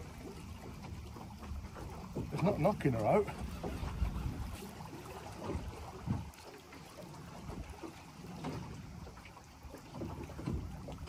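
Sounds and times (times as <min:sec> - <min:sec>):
water lapping against boat hull: 0:00.0 - 0:11.0
wind on microphone: 0:03.4 - 0:06.4.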